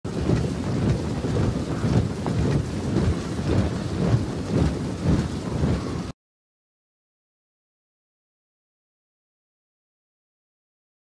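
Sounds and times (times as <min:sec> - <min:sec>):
low rumbling: 0:00.1 - 0:06.1.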